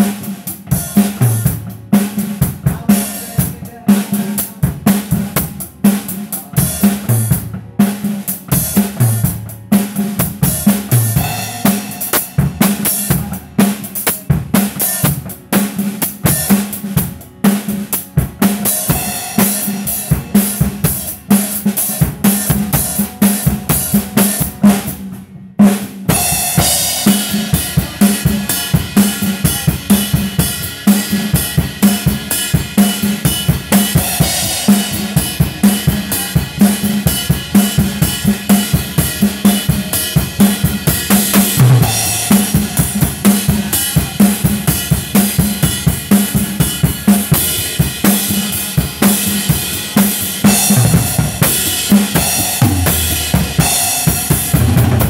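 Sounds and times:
drum kit playing: 0.0s - 55.0s
cymbals washing: 26.1s - 55.0s.

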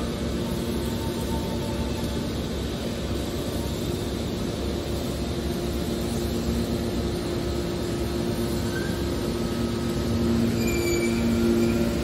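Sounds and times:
faint high squeaks: 8.6s - 9.1s, 10.4s - 12.0s.

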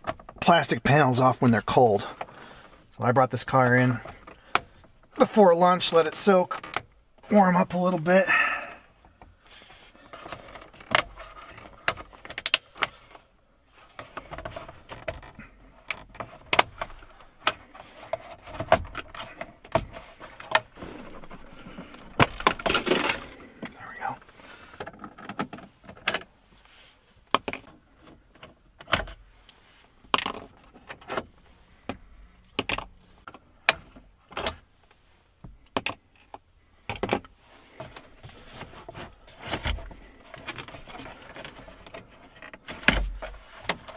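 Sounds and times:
plastic trim rattling and scraping: 13.8s - 26.3s, 35.6s - 43.9s.

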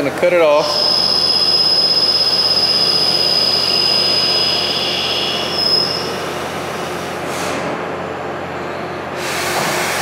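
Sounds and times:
lathe high whine: 0.3s - 7.2s.

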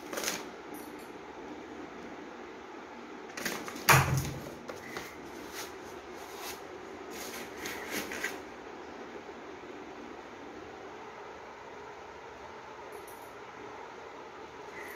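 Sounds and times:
cardboard and paper rustling: 3.4s - 8.4s.

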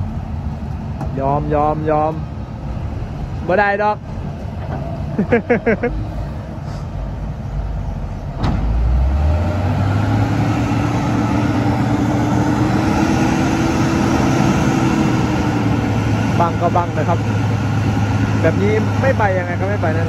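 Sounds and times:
diesel truck engine revving: 0.0s - 20.0s.

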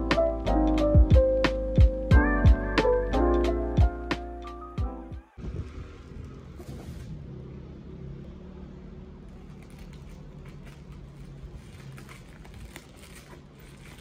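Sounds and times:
plastic crinkling: 9.3s - 14.0s.

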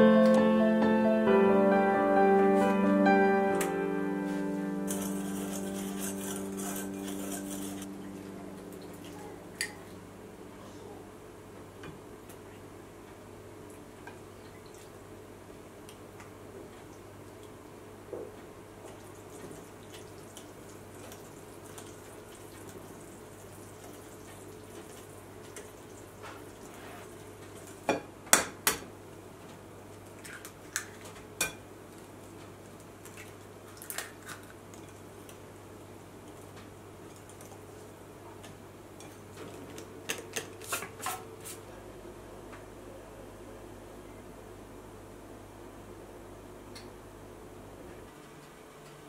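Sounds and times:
faint steady hum: 0.0s - 49.0s
whisk clinking on glass bowl: 4.9s - 7.9s.

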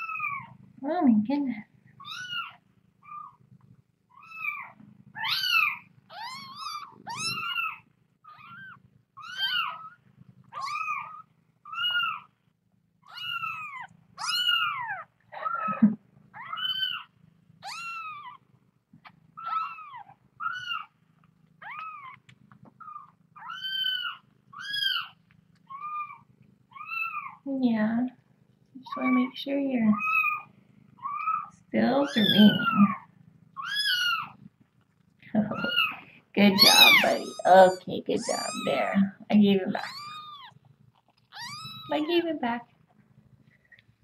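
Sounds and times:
kitten mewing: 4.1s - 12.2s, 13.1s - 18.4s, 30.0s - 34.4s, 35.4s - 40.6s, 41.2s - 42.1s.

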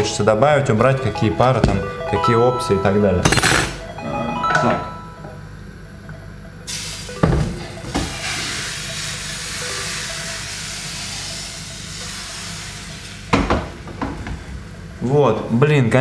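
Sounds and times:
batter sizzling in pan: 8.1s - 13.3s.

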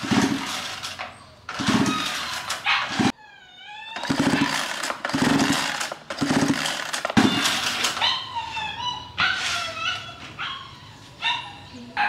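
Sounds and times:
harsh rough bursts: 0.0s - 3.1s, 4.0s - 8.0s
dog whining: 1.1s - 4.9s, 7.2s - 12.0s.

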